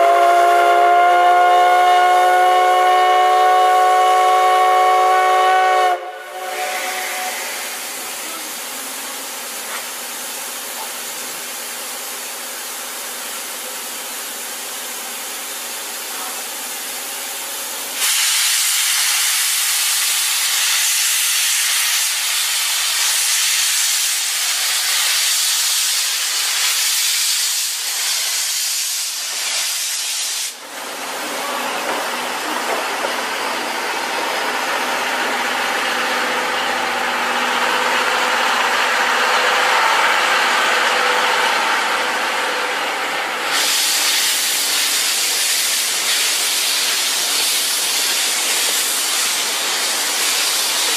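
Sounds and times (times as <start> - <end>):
steam locomotive venting steam: 0.0 - 50.9
light steam hiss: 5.0 - 33.7, 43.1 - 50.9.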